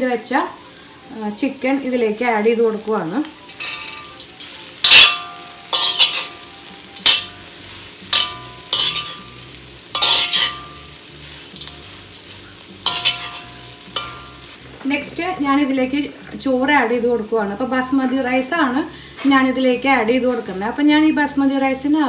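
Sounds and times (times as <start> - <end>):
food sizzling: 0.0 - 22.0
metal spatula scraping wok: 3.5 - 16.4.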